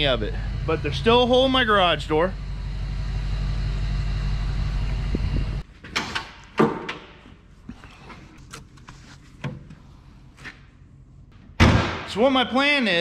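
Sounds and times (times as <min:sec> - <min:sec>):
steady low rumble: 0:00.0 - 0:05.7.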